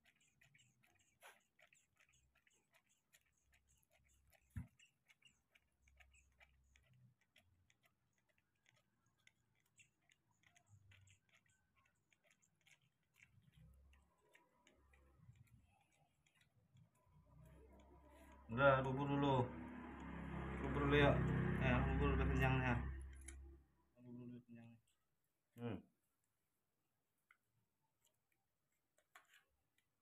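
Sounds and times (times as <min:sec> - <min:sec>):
baby monkey sucking clicks: 0:00.0 - 0:18.5.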